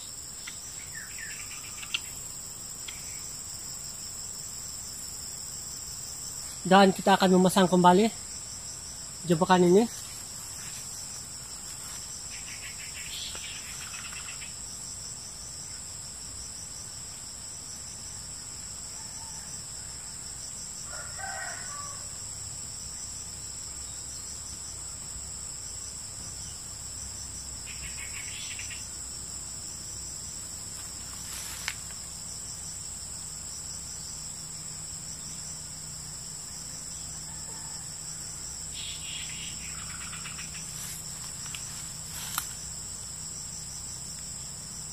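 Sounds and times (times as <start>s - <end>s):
insects droning: 0.0s - 44.9s
rooster crowing: 18.9s - 20.2s, 20.8s - 22.2s, 37.1s - 38.5s.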